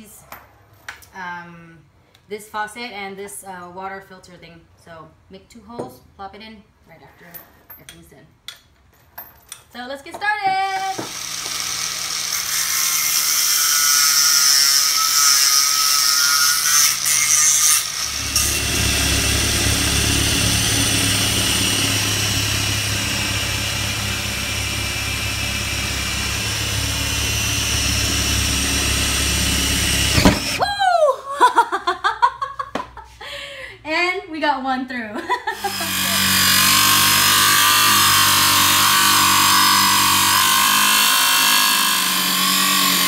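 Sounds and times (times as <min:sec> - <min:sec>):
angle grinder whining on wood: 0:10.7 - 0:30.7, 0:35.6 - 0:43.0
cordless drill boring through wood: 0:10.8 - 0:30.7, 0:35.6 - 0:43.0.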